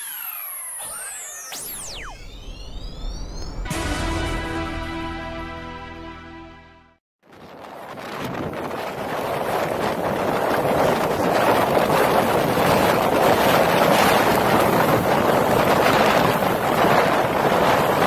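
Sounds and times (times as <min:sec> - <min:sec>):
wind buffeting microphone: 0:07.3 - 0:18.0.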